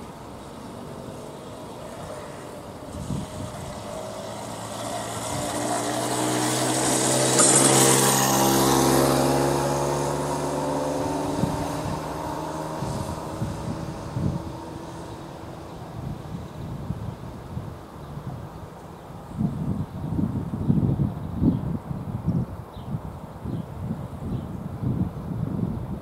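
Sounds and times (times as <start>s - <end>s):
motorbike engine passing by: 0.6s - 17.6s.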